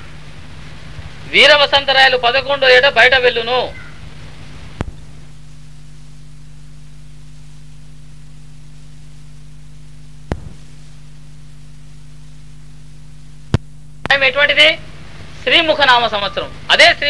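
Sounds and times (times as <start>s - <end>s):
electrical hum with hiss: 0.0s - 17.0s
sharp click: 10.3s - 10.6s.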